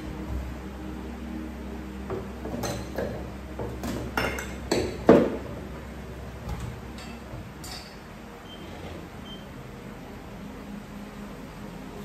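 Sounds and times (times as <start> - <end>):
glass bottles and dishes clinking: 3.8 - 5.4, 6.5 - 8.0.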